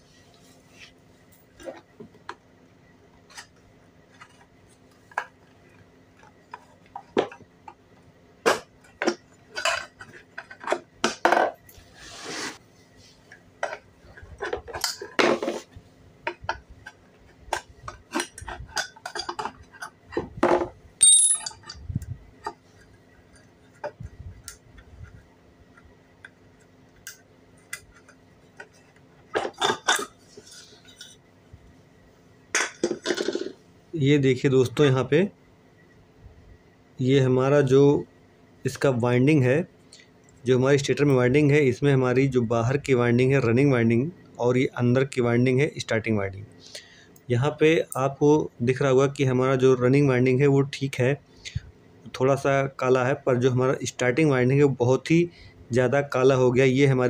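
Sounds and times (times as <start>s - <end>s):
metal clinks and scrapes: 21.0s - 21.9s.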